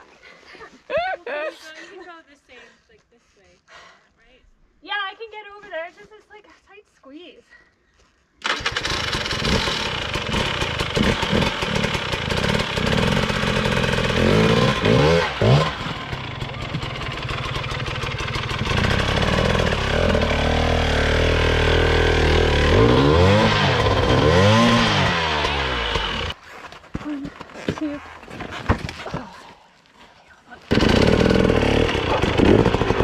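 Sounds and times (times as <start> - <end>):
dirt bike engine revving: 8.4 - 26.4, 30.7 - 33.0.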